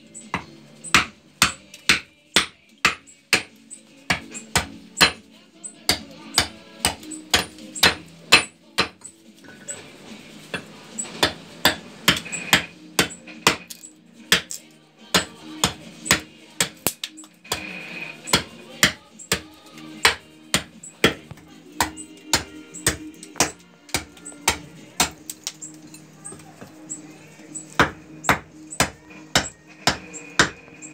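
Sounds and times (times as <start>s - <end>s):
background music with steady tones: 0.0s - 30.9s
hammer knocking on wood: 27.8s - 30.6s.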